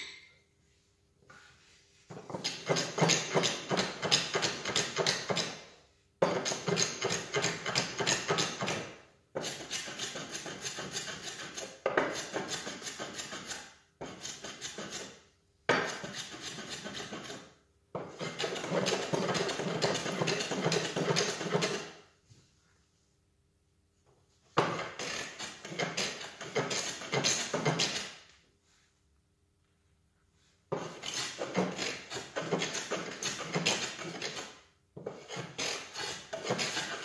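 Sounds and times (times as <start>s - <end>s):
hand plane rasping on wood: 15.9s - 21.9s, 24.6s - 28.1s, 30.7s - 34.4s, 35.0s - 37.0s.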